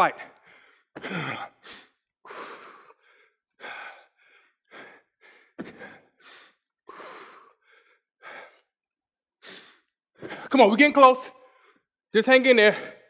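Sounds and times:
man breathing hard: 0:00.3 - 0:08.8, 0:09.4 - 0:10.5.

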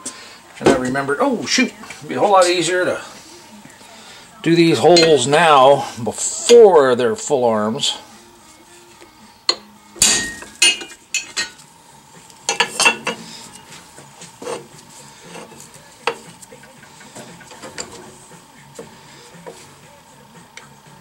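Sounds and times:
metal clanks and knocks: 0:09.5 - 0:11.6.

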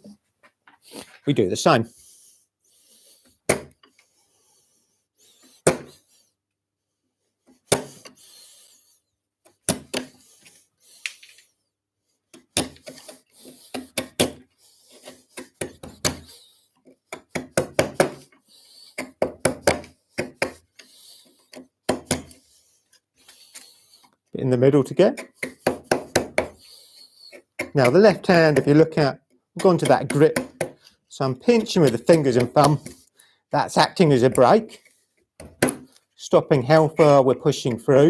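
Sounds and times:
chisel paring wood: 0:03.4 - 0:03.9, 0:05.6 - 0:06.0, 0:07.5 - 0:08.2, 0:09.5 - 0:10.2, 0:12.3 - 0:22.4, 0:25.1 - 0:33.1, 0:34.0 - 0:35.9.

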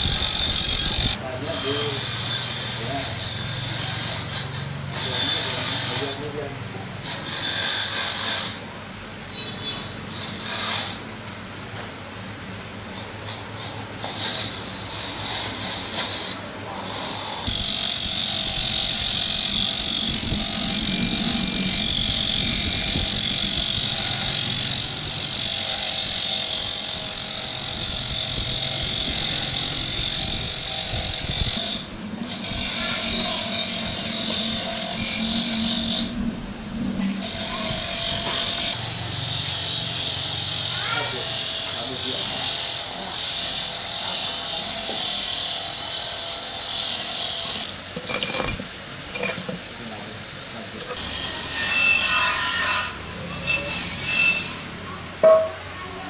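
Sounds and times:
handheld power tool running: 0:00.0 - 0:03.9, 0:17.4 - 0:36.2
tool clinks and scrapes: 0:48.0 - 0:49.6.

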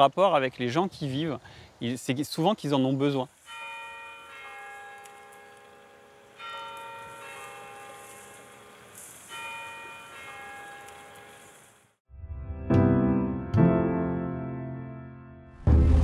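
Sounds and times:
bell tones ringing: 0:03.5 - 0:11.5.

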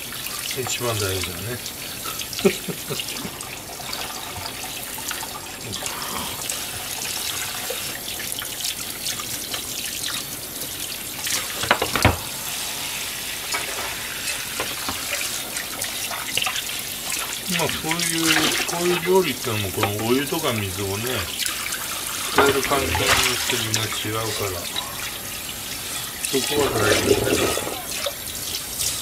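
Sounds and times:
tap water running into sink: 0:00.0 - 0:29.0
water splashing on plastic container: 0:14.6 - 0:24.7, 0:26.2 - 0:28.7
container clattering: 0:22.3 - 0:24.9, 0:26.0 - 0:28.2.

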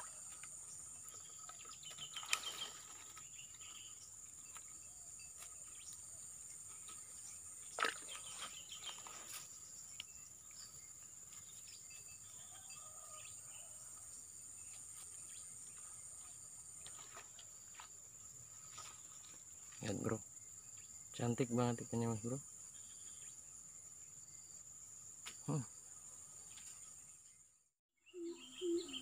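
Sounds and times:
insects trilling: 0:00.0 - 0:26.6
faint bird chirps: 0:25.4 - 0:25.7, 0:28.0 - 0:29.0.

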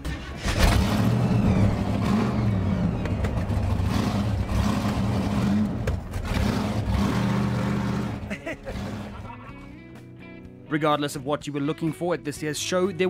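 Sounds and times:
supercharged car engine running: 0:00.0 - 0:09.5.

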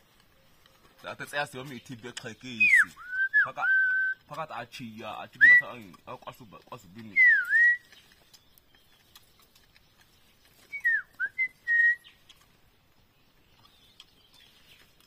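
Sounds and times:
person whistling: 0:02.6 - 0:04.2, 0:07.2 - 0:07.9, 0:10.7 - 0:12.0
faint small ticks: 0:05.8 - 0:11.2.

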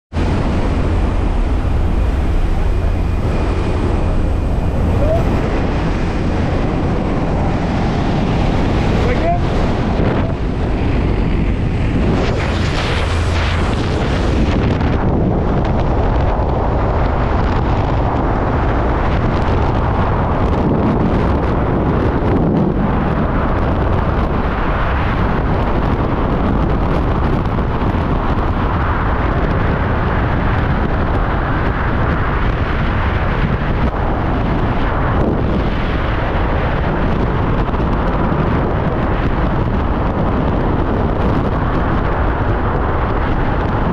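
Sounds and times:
wind roaring over microphone: 0:00.1 - 0:43.9.

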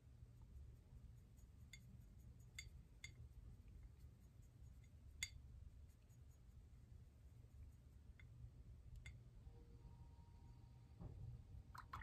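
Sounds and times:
low steady hum: 0:00.0 - 0:12.0
paintbrush clinking on ceramic palette: 0:01.6 - 0:03.3.

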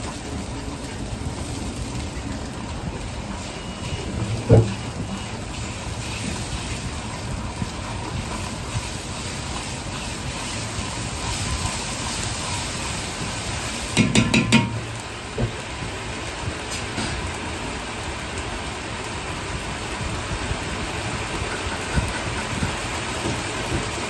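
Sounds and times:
paste sizzling in oil: 0:00.0 - 0:17.6.

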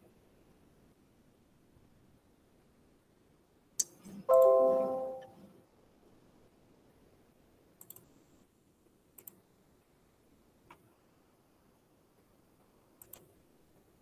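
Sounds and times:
computer notification chime: 0:04.3 - 0:05.3
computer mouse clicks: 0:07.8 - 0:08.1, 0:09.2 - 0:09.4, 0:13.0 - 0:13.3.

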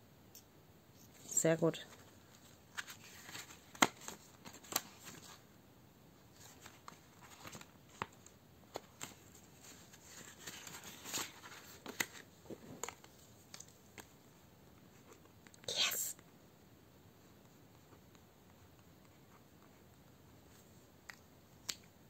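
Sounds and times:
paper and plastic rustling: 0:01.9 - 0:05.4, 0:06.3 - 0:13.4.

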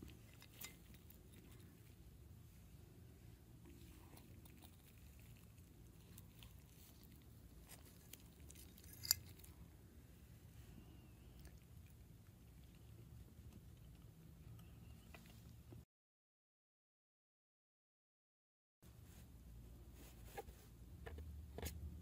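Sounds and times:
spoon scraping ceramic plate: 0:08.6 - 0:09.4
spoon clinking on plate: 0:08.8 - 0:09.4.

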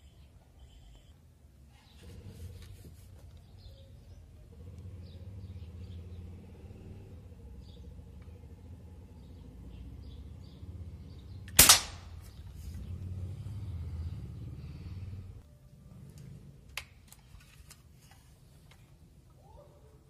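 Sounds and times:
air rifle shot: 0:11.5 - 0:12.2.

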